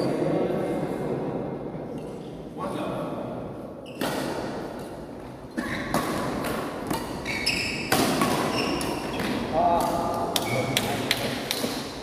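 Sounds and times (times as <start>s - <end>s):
shoe squeaks on court floor: 3.8s - 4.4s, 5.5s - 6.0s, 7.2s - 9.3s, 10.4s - 10.9s
racket striking shuttlecock: 4.0s - 5.0s, 5.6s - 12.0s.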